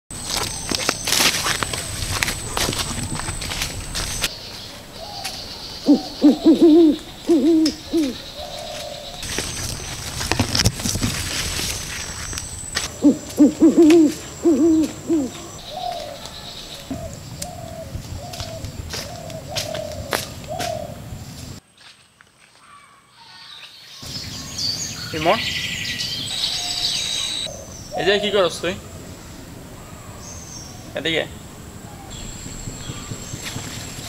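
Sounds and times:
steps in leaf litter: 0:00.1 - 0:05.6, 0:08.0 - 0:13.4, 0:18.0 - 0:22.8
faint forest ambience: 0:00.1 - 0:34.0
owl hooting: 0:05.0 - 0:09.2, 0:12.9 - 0:21.0, 0:26.3 - 0:34.0.

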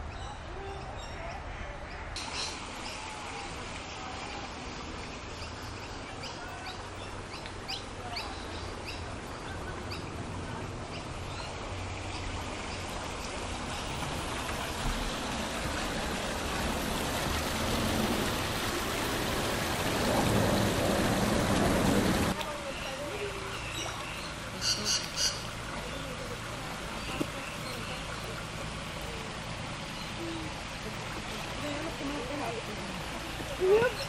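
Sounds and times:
small birds chirping: 0:00.0 - 0:14.1, 0:22.5 - 0:34.0
water running over rocks: 0:02.2 - 0:34.0.

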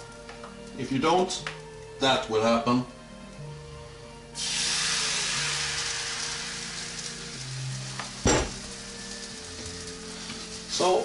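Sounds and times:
batter sizzling in a frying pan: 0:04.3 - 0:11.0
short knock: 0:08.3 - 0:08.6.

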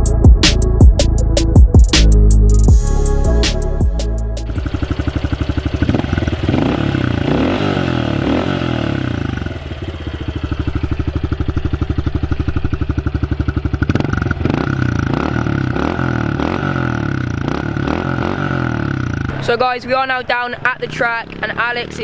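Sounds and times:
small motorcycle engine idling: 0:04.4 - 0:22.0.

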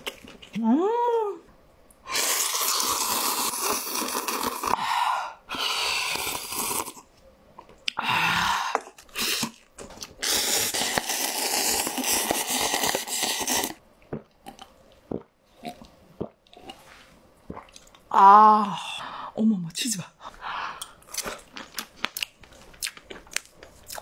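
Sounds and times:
broth sipping: 0:02.1 - 0:04.8
noodles slurping: 0:02.1 - 0:04.8, 0:08.8 - 0:13.8.

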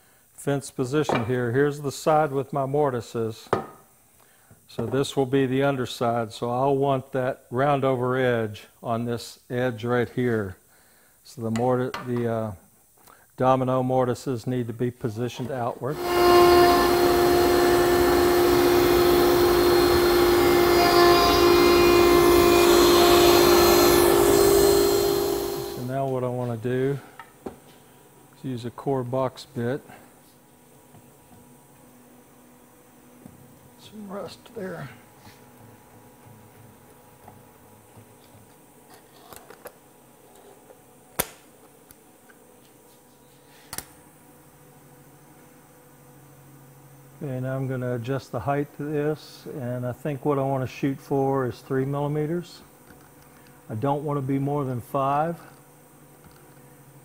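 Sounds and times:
router high whine: 0:15.8 - 0:25.9
router bit cutting wood: 0:15.9 - 0:25.9.

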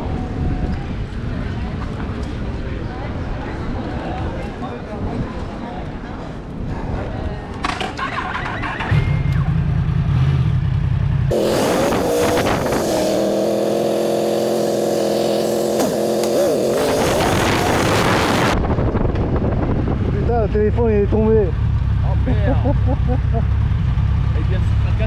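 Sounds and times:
motorcycle engine: 0:08.0 - 0:25.0
wind hiss: 0:11.3 - 0:20.2.

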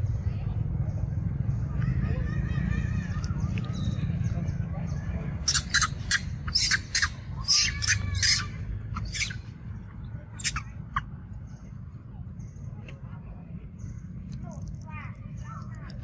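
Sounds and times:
monkey screeching: 0:05.4 - 0:09.5, 0:10.4 - 0:10.7.

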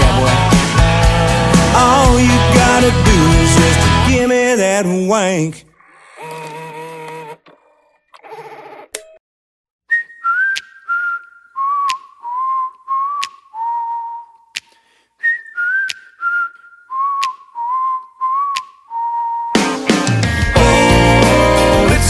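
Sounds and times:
country music: 0:00.0 - 0:05.6, 0:19.5 - 0:22.0
person whistling a tune: 0:09.9 - 0:20.8.

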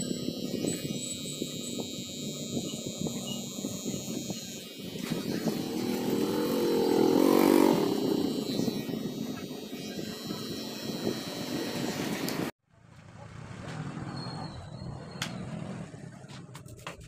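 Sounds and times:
electric hair clipper buzzing: 0:00.0 - 0:12.5
passing vehicle engine: 0:05.3 - 0:08.8.

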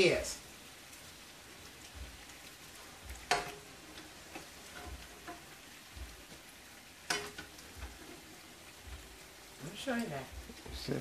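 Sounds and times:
oil sizzling in a frying pan: 0:00.0 - 0:11.0
metal spatula clinking on pan: 0:03.2 - 0:05.6, 0:07.0 - 0:08.2.

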